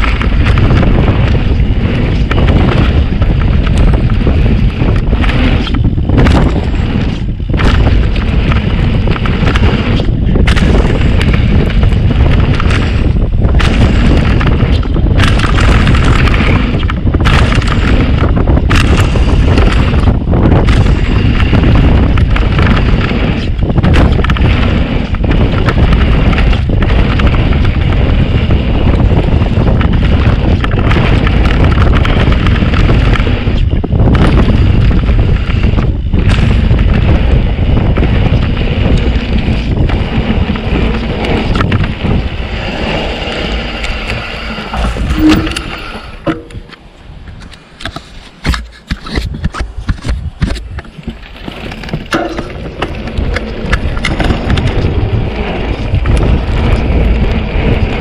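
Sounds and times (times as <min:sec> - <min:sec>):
steady rumble: 0:00.0 - 0:58.0
wind buffeting microphone: 0:00.0 - 0:58.0.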